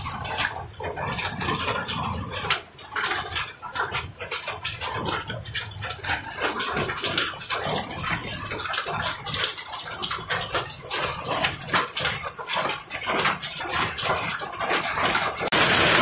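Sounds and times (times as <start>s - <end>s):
rain hissing: 15.4s - 16.0s.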